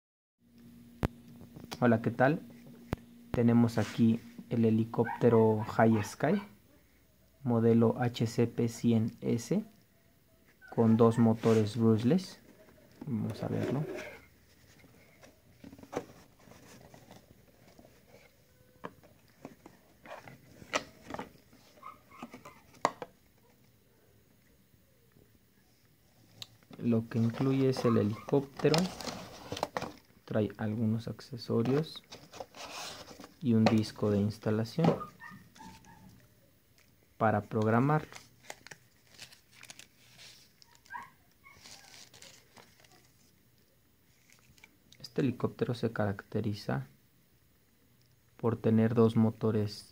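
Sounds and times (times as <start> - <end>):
paper scrape: 11.3 - 11.8, 32.1 - 33.4
packaging rustling: 26.6 - 30.3, 31.6 - 36.2, 37.6 - 43.3.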